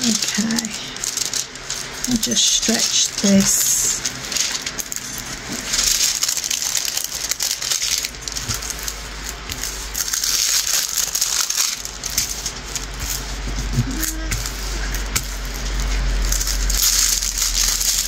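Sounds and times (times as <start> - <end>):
plastic film crinkling: 0.0 - 18.0.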